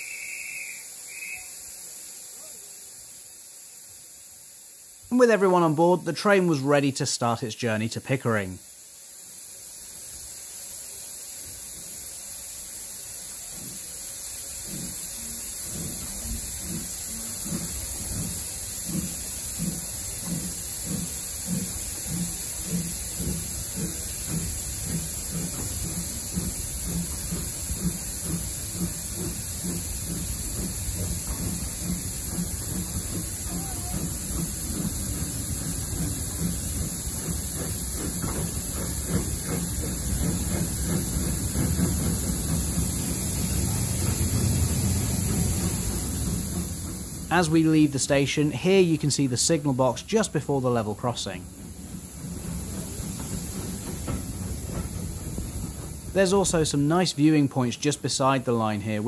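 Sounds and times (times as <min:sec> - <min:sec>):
steady steam hiss: 0:00.0 - 0:59.0
steam locomotive exhaust beats: 0:00.0 - 0:59.0.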